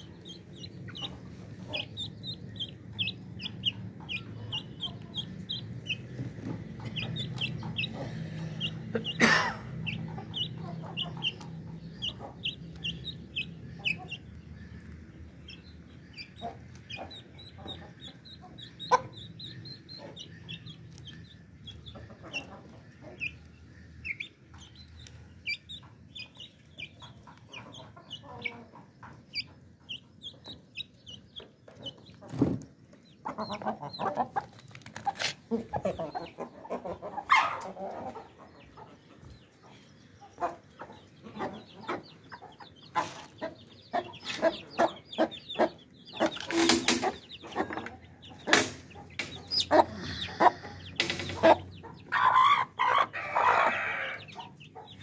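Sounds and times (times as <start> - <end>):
chick cheeping: 0.0 - 32.4, 33.0 - 55.0
hen clucking: 0.0 - 55.0.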